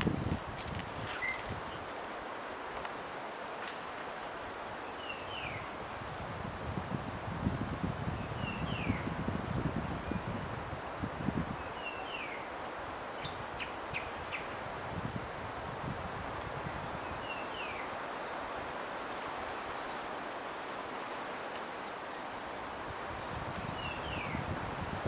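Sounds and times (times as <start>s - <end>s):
rustling in brush: 0.0s - 4.1s
insects droning: 0.0s - 25.0s.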